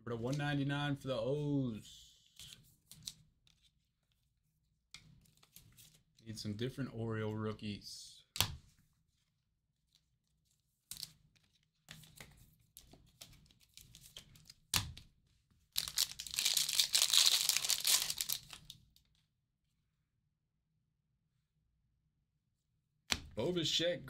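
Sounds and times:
wrapper crinkling: 0:15.8 - 0:18.8
wrapper snaps: 0:15.8 - 0:18.8
wrapper tearing open: 0:15.8 - 0:18.8.

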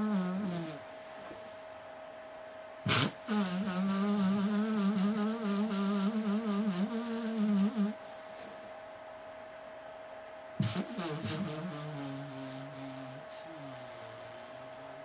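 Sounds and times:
man moaning hum: 0:10.8 - 0:15.0.

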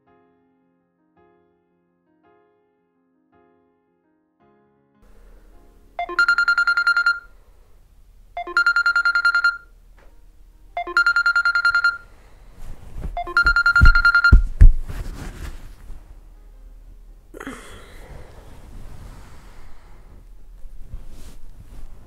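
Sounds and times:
phone ringtone trilling: 0:06.0 - 0:07.3, 0:08.4 - 0:09.7, 0:10.8 - 0:12.1, 0:13.2 - 0:14.5
rustling: 0:11.1 - 0:16.4, 0:18.0 - 0:22.0
dull thumps on bed: 0:12.6 - 0:16.0.

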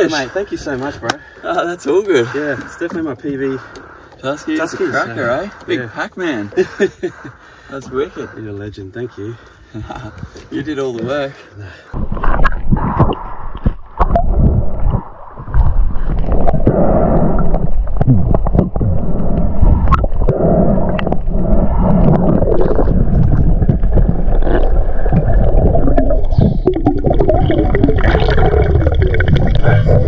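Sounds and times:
underwater rushing and gurgling: 0:11.9 - 0:30.0.

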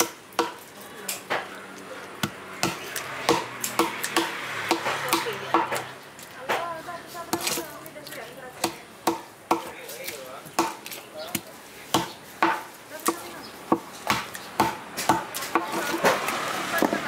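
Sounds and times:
cleaver chopping on block: 0:00.0 - 0:00.6, 0:02.2 - 0:05.9, 0:08.6 - 0:17.0.

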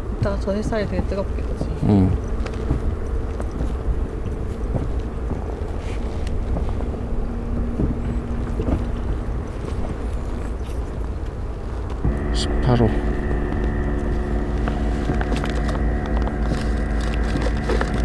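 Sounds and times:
faint low hum: 0:00.0 - 0:18.0
sea water washing against boat: 0:00.0 - 0:18.0
wind rumbling on microphone: 0:00.0 - 0:18.0.

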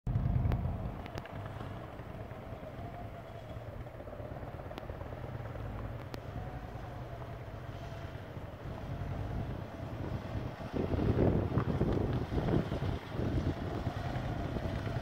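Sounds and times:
motorcycle engine running low: 0:00.1 - 0:15.0
light ticks: 0:05.7 - 0:06.2.

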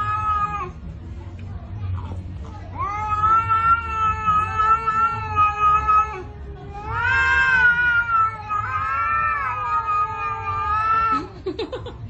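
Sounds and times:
cat yowling: 0:00.0 - 0:00.8, 0:02.8 - 0:11.3.

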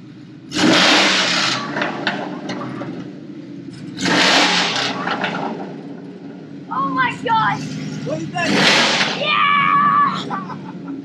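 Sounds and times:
engine revving: 0:00.0 - 0:03.1, 0:03.7 - 0:10.9
engine idling: 0:00.0 - 0:11.0
exhaust pops: 0:03.9 - 0:06.0.

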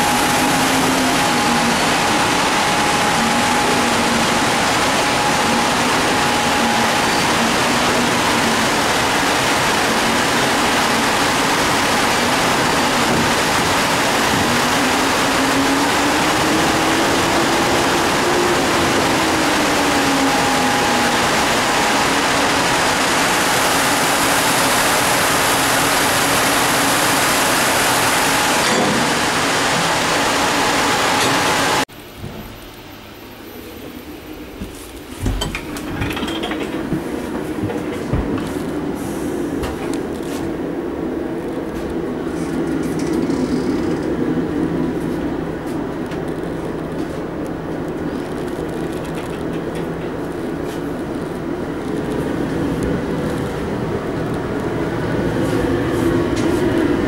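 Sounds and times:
locomotive cooling blowers rushing: 0:00.0 - 0:31.9.

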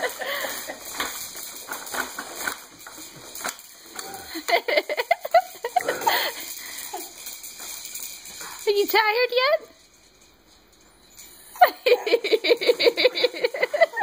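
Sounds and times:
baby jumper clicking and rattling: 0:00.0 - 0:14.0.

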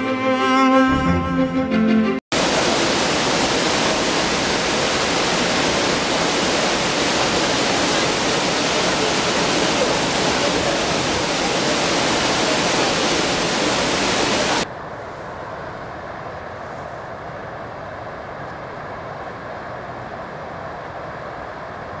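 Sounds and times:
waterfall roaring: 0:02.3 - 0:14.7
water spilling over rock ledges: 0:02.4 - 0:14.6.

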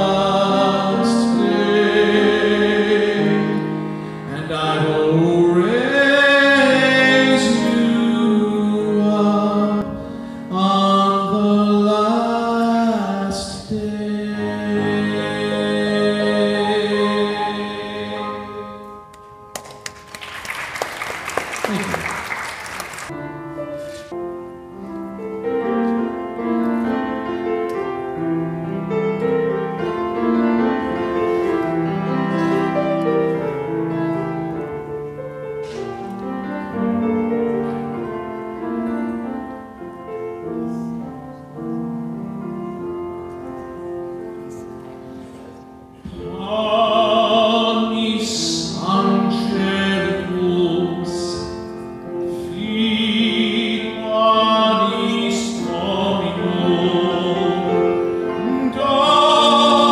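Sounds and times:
man singing into microphone: 0:00.0 - 0:19.0, 0:46.0 - 0:59.9
grand piano playing chords: 0:00.0 - 0:59.9.

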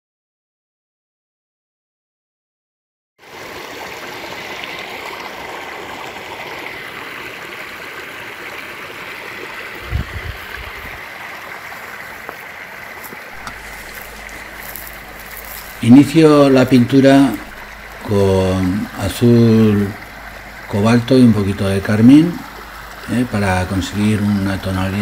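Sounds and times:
waterfall rushing over rocks: 0:05.4 - 0:25.0.

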